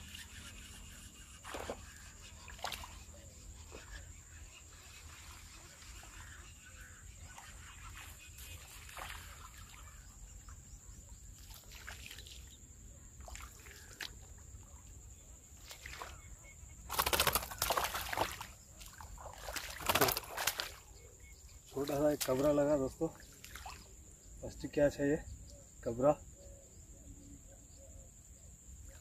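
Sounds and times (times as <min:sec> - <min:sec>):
water splashing and sloshing: 0:00.0 - 0:24.2
faint splashes of a lure: 0:01.4 - 0:04.0, 0:07.2 - 0:10.2, 0:11.3 - 0:12.6, 0:13.2 - 0:14.7, 0:15.6 - 0:24.0.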